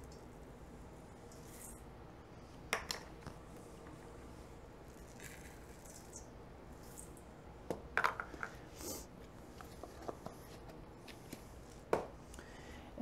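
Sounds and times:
oats pouring with soft rustle: 4.8s - 7.2s.

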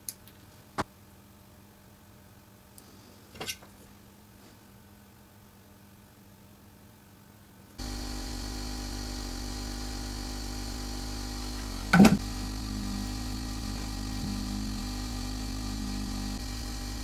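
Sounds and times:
steady whirring hum: 0.0s - 17.0s.

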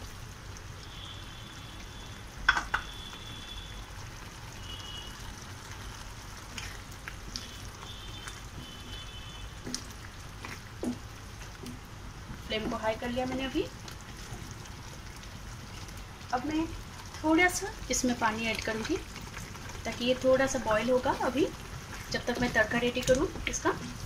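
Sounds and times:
gravy bubbling and sizzling in pan: 0.0s - 24.0s
spatula stirring: 5.4s - 24.0s.

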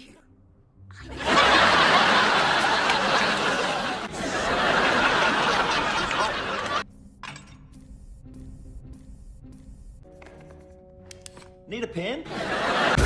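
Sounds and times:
loud laughter of many voices: 1.1s - 6.8s, 12.3s - 13.0s.

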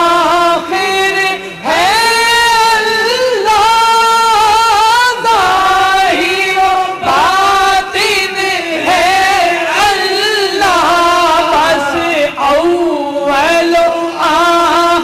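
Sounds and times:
person singing devotional melody: 0.0s - 15.0s.

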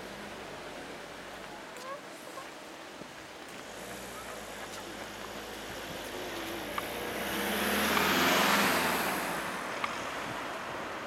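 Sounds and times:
car driving past: 3.7s - 11.0s.

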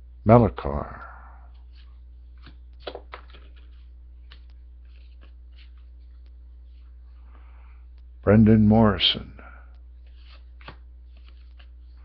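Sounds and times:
cards clicking and rustling: 1.5s - 7.0s, 10.0s - 12.0s.

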